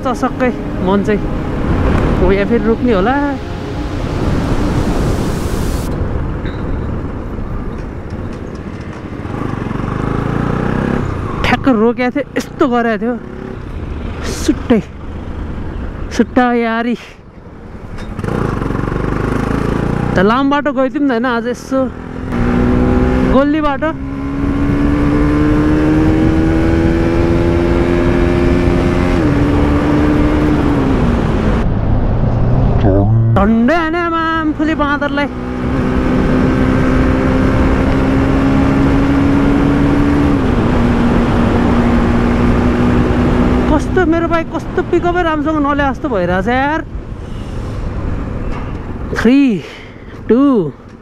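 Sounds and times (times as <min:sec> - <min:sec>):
wind rushing: 0:00.0 - 0:08.1, 0:30.6 - 0:34.2.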